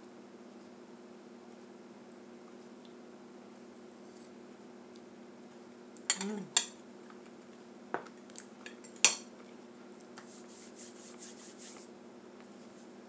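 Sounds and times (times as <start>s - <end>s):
fork clinking on plate: 6.1s - 6.8s, 8.7s - 9.3s.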